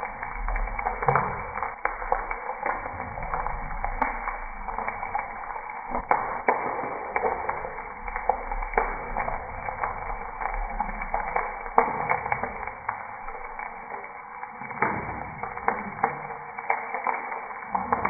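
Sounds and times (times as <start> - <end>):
eggs sizzling in oil: 0.0 - 18.0.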